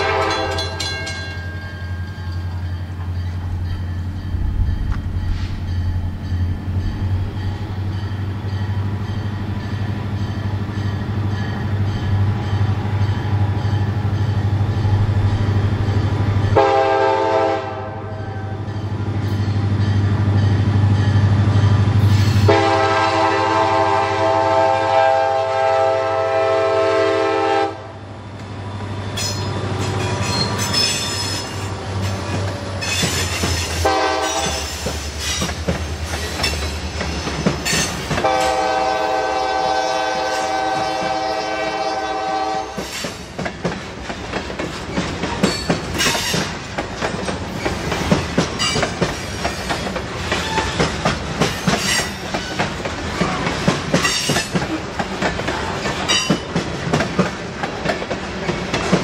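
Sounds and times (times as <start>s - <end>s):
locomotive horn: 0.0s - 1.2s, 16.6s - 18.7s, 22.1s - 28.1s, 33.8s - 34.8s, 38.1s - 42.9s
wheels clacking over rail joints: 28.4s - 39.7s, 42.7s - 59.0s
wheel squeals: 48.6s - 51.0s.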